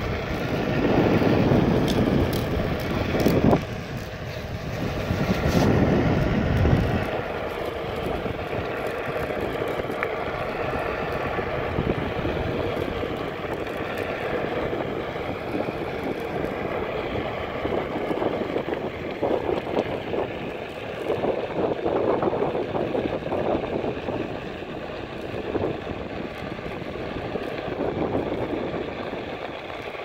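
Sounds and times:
electric board motor hum: 0.0s - 30.0s
wind buffeting microphone: 0.0s - 30.0s.

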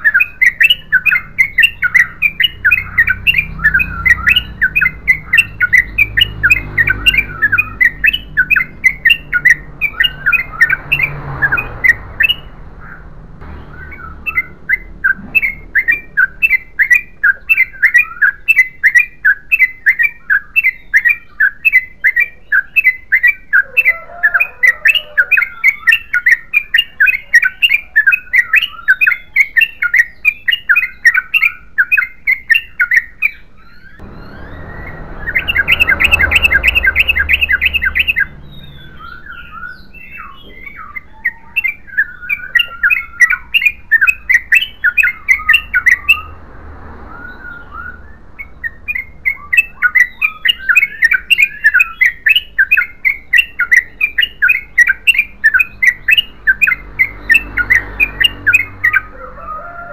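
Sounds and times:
bird chattering song: 0.0s - 46.4s, 47.0s - 59.9s
low rumble: 34.0s - 39.2s.

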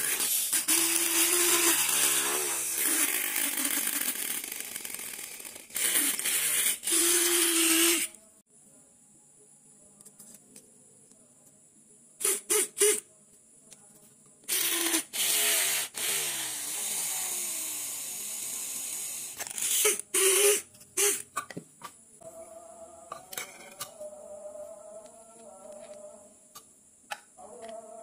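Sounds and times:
electric drill motor running: 14.5s - 19.9s
drill bit boring into sheet: 14.5s - 20.6s.

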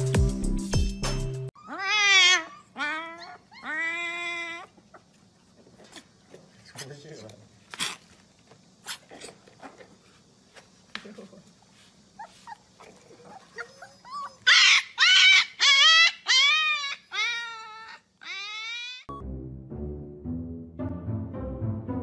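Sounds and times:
puppies howling: 1.6s - 4.8s, 12.8s - 19.1s.

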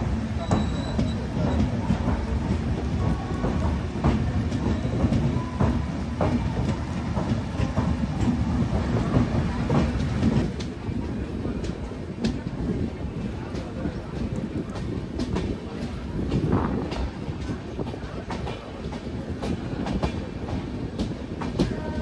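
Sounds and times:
wheels clacking over rail joints: 0.0s - 12.8s
train rumbling past: 0.0s - 22.0s.

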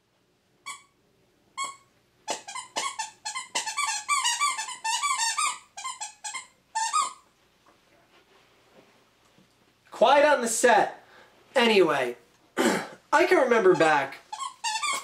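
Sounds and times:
squeaky dog toy squeaking: 0.6s - 1.0s, 1.6s - 7.2s, 13.6s - 15.0s.

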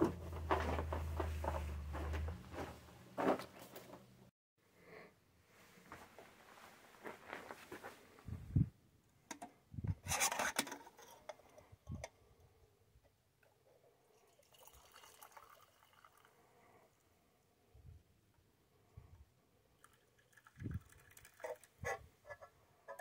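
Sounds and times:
water pouring into mug: 14.2s - 16.4s, 19.8s - 21.8s.

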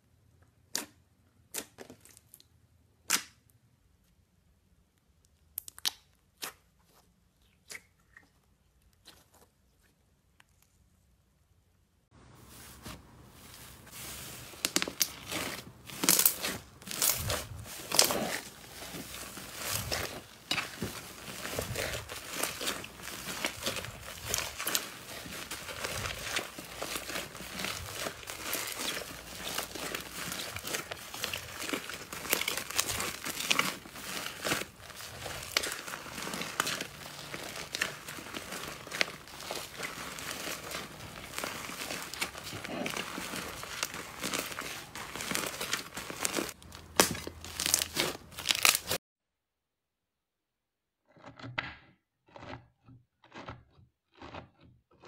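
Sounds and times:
crunchy slime crackling: 12.4s - 49.0s.

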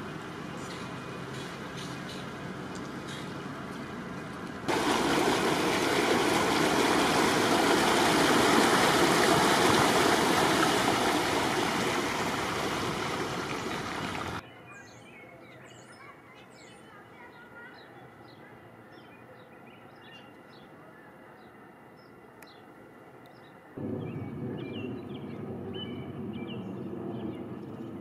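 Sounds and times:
floodwater rushing: 4.7s - 14.4s.

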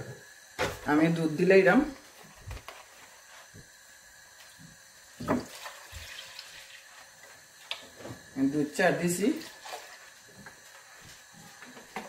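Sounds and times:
milk pouring into a pot: 5.2s - 7.4s.

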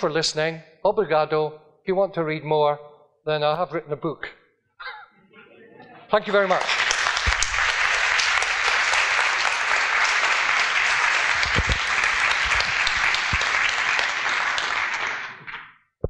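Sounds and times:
audience applauding: 6.2s - 15.7s.

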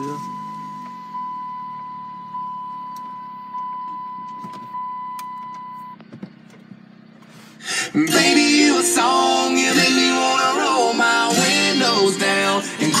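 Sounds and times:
dashboard warning chime: 0.0s - 6.1s
car engine idling: 5.4s - 13.0s.

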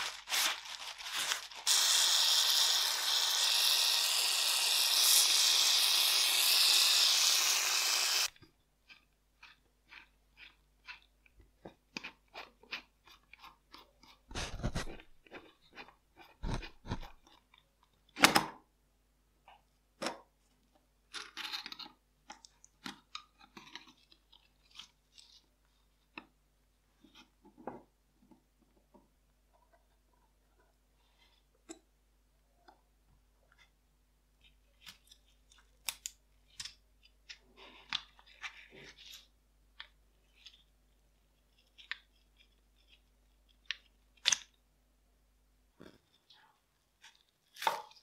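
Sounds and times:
aerosol can hissing: 1.6s - 8.3s.

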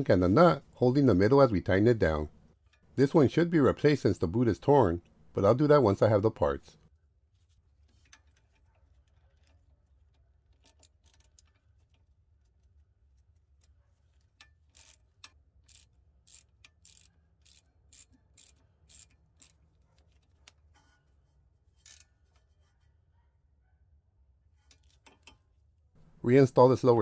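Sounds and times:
ratcheting wrench clicking: 14.4s - 19.6s.

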